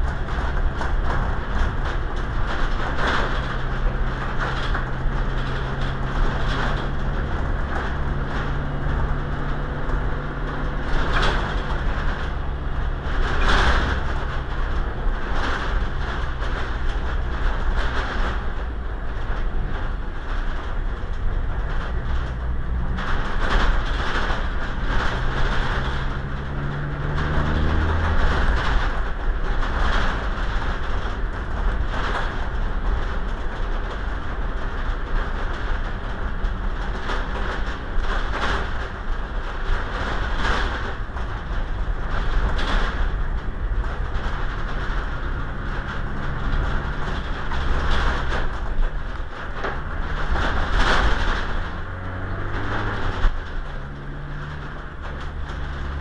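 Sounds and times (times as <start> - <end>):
vehicle engine rumble: 0.0 - 56.0.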